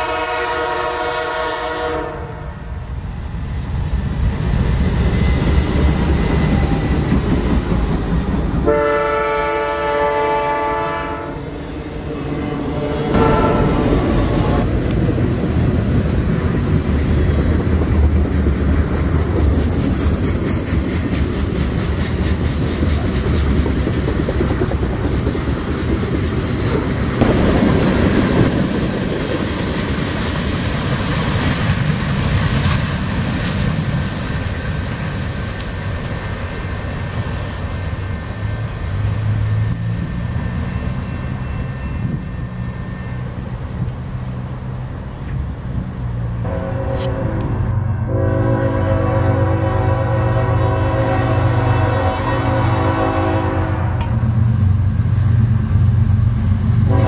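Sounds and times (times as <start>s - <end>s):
freight train rumble: 0.0s - 57.0s
wheels clacking over rail joints: 12.7s - 36.9s.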